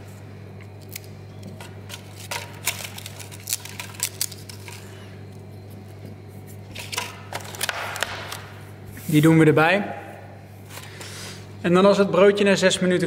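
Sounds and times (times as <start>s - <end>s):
steady low hum: 0.0s - 13.0s
crackers crackling and snapping: 0.5s - 5.5s.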